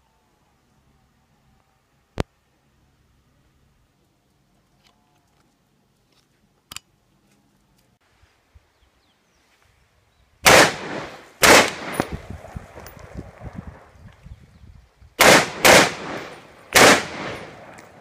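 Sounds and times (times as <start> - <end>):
rifle shots with echo: 10.4 - 12.4, 15.2 - 18.0.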